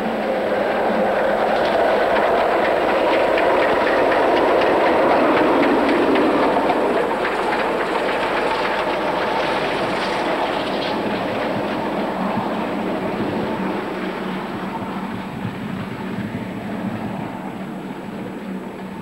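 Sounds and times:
steam locomotive passing: 0.0 - 19.0
wheels clicking over rail joints: 0.0 - 19.0.

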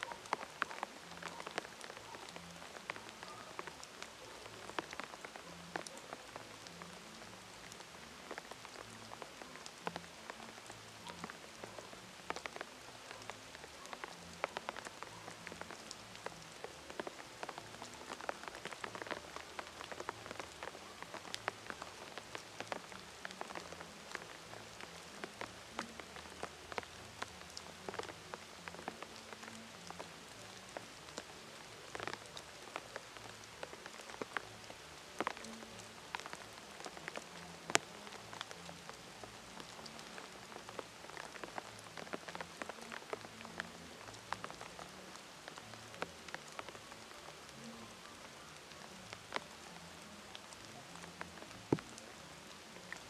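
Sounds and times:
rain falling on leaves: 0.0 - 53.0
raindrop hits: 51.1 - 52.1.

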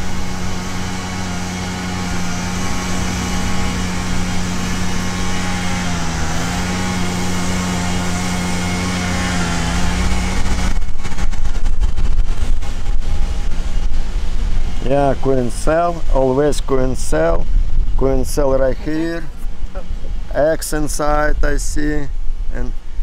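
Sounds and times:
honeybees buzzing: 0.0 - 10.8.

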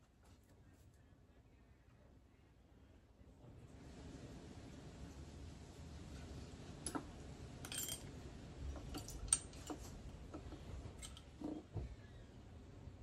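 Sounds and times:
light metallic clicks and clinks: 6.9 - 8.1, 8.8 - 10.0, 11.0 - 11.6.

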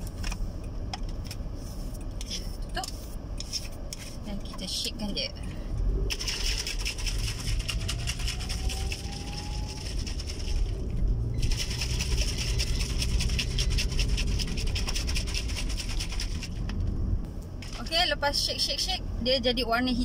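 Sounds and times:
shaker bottle rattling: 6.1 - 16.6.

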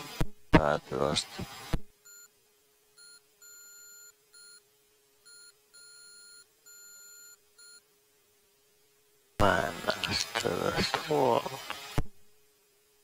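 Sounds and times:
faint steady hum: 0.0 - 13.0
morse code beeps: 3.0 - 4.6, 5.3 - 7.8.

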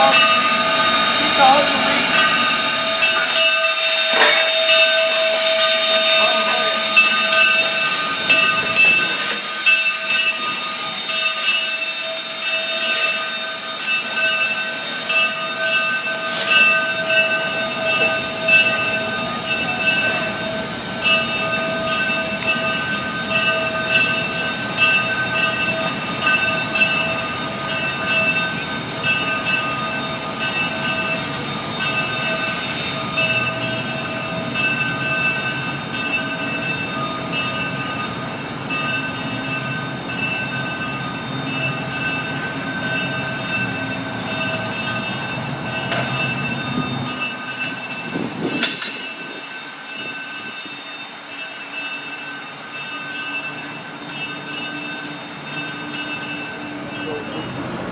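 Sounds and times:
steam locomotive chuffing: 0.0 - 57.9
steam locomotive hissing: 0.0 - 57.9.

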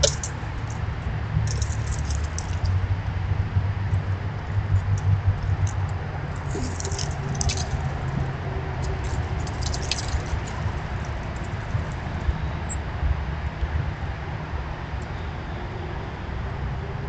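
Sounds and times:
squirrels scampering on mulch: 0.0 - 2.8, 4.0 - 12.8
steady low rumble: 0.0 - 17.0.

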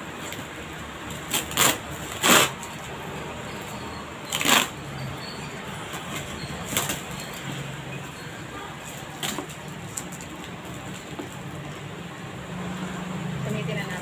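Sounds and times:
scissors cutting plastic: 1.0 - 2.9, 4.3 - 4.8, 8.9 - 11.4.

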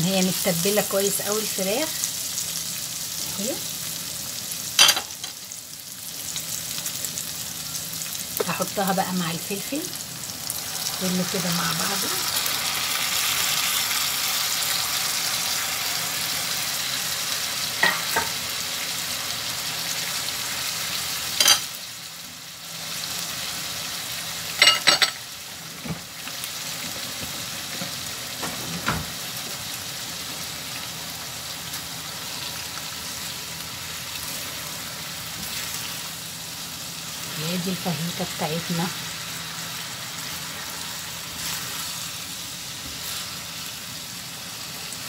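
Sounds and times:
food sizzling in a pan: 0.0 - 45.0
utensils clinking against pan: 21.4 - 21.7, 24.6 - 25.2.

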